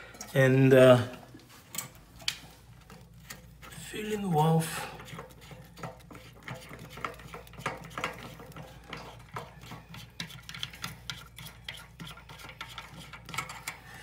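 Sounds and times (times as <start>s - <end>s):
nut turning clicks and scrapes: 1.7s - 3.9s, 4.9s - 13.9s.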